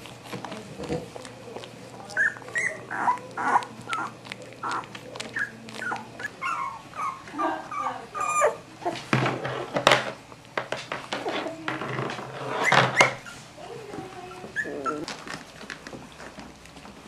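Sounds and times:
puppy whimpering and squeaking: 2.0s - 9.0s, 12.3s - 15.3s.

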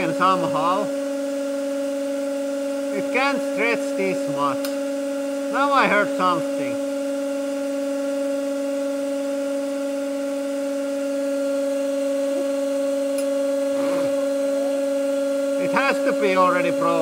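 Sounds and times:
hydraulic pump two-tone hum: 11.6s - 17.0s.

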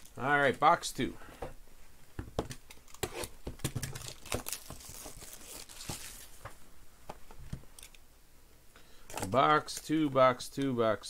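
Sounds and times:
plastic wrap crinkling and tearing: 2.8s - 6.4s.

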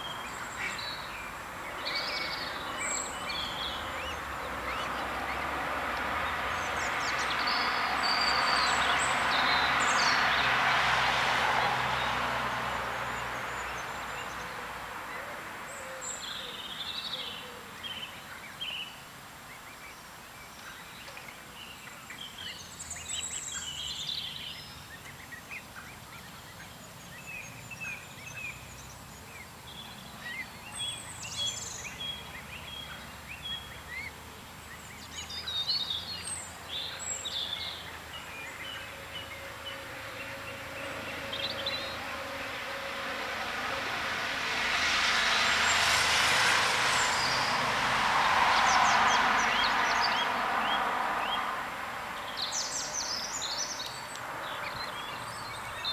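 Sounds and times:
rush of noise: 38.1s - 53.0s.

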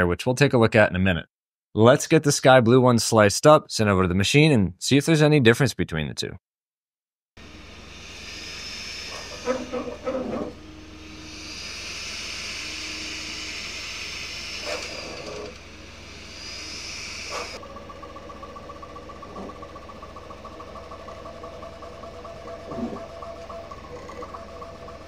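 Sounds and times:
three d printer whine: 7.4s - 25.0s.

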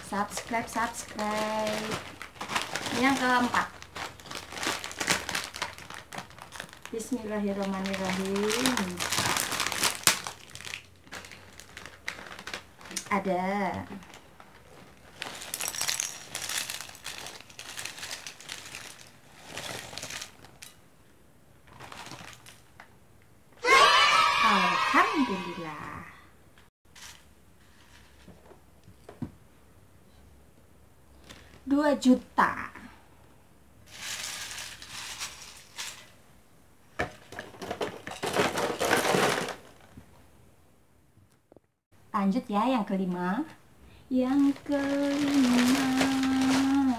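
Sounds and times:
snack packet crinkling: 0.0s - 13.3s, 13.9s - 20.8s, 21.6s - 22.7s, 44.4s - 46.9s
crackers clattering into glass bowl: 15.2s - 20.8s, 33.9s - 36.1s, 37.2s - 39.8s, 44.7s - 46.9s.

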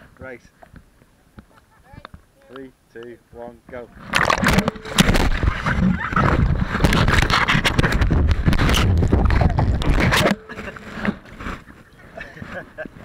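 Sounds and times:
fingers rubbing over microphone: 4.0s - 11.8s.

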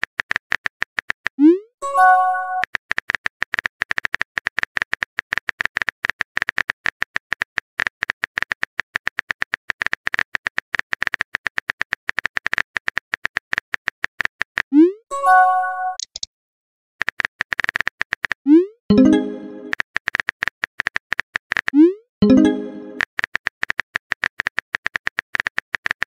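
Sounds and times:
phone keyboard tapping clicks: 16.0s - 16.3s.

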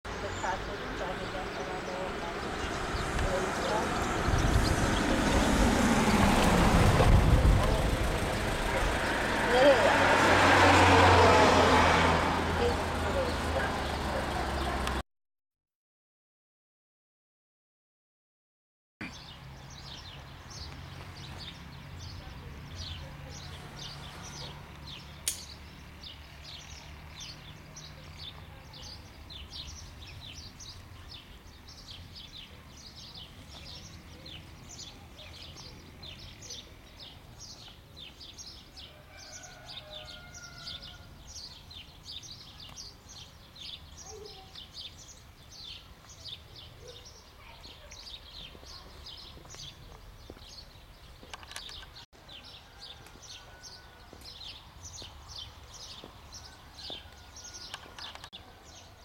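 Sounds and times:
small songbirds chirping: 0.1s - 10.2s, 19.0s - 59.0s
sharp click: 25.2s - 25.6s.

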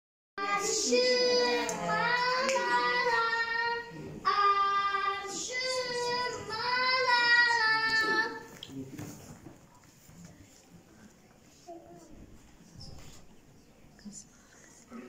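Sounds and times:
child singing: 0.4s - 8.5s.

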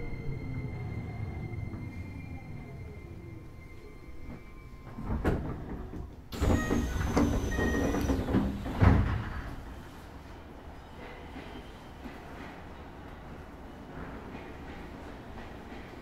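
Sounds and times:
rush of train noise: 0.0s - 16.0s
train doors sliding open: 3.0s - 10.4s.

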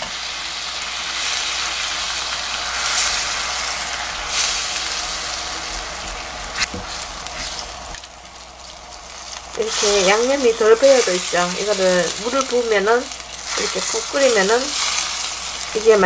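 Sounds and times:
meat sizzling in a frying pan: 0.0s - 16.0s
spatulas stirring: 5.8s - 16.0s.

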